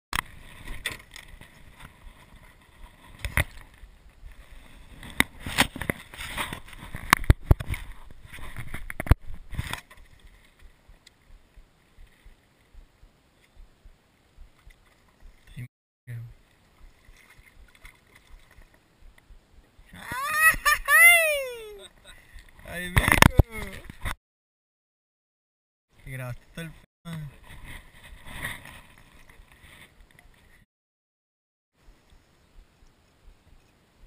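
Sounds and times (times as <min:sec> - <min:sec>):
wind and water hiss: 0:00.2 - 0:20.8, 0:31.8 - 0:34.0.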